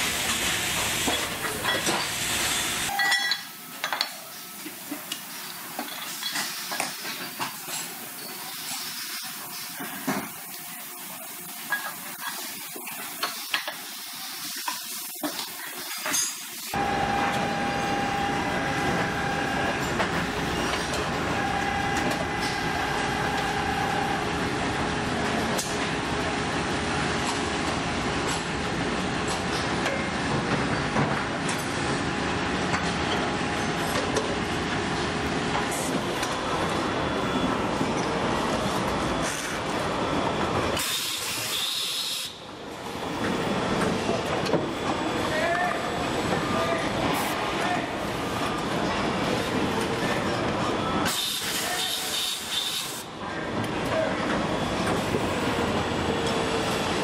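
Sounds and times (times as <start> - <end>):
machinery din with faint whine: 14.4 - 57.0.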